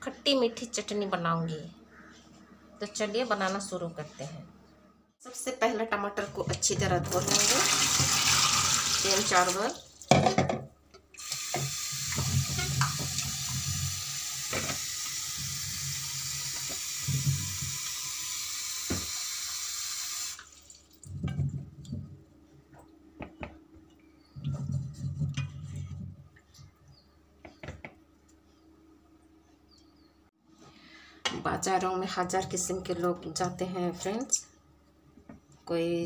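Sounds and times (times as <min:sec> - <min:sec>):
tap water running into steel bowl: 0:07.1 - 0:09.8, 0:11.2 - 0:20.9.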